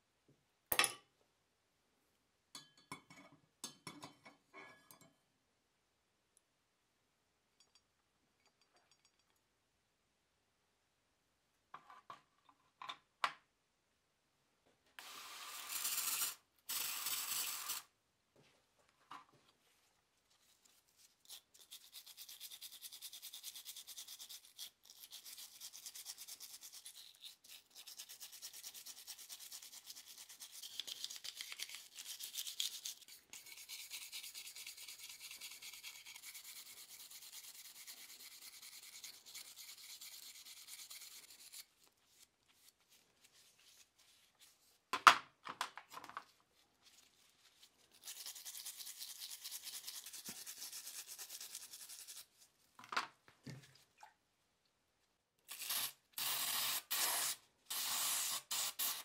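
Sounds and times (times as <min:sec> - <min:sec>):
brush scrubbing metal buckle: 0:20.3 - 0:44.8, 0:46.7 - 0:52.4.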